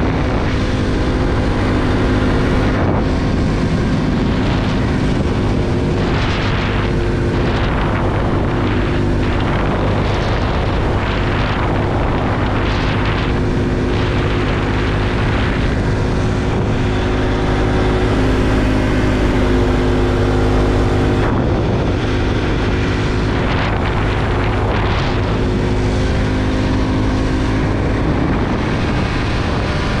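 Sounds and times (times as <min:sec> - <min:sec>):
motorbike engine cruising: 0:00.0 - 0:30.0
wind and road noise: 0:00.0 - 0:30.0.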